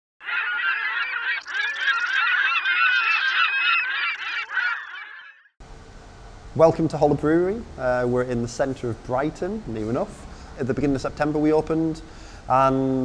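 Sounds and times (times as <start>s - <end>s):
gulls calling: 0.2s - 5.6s.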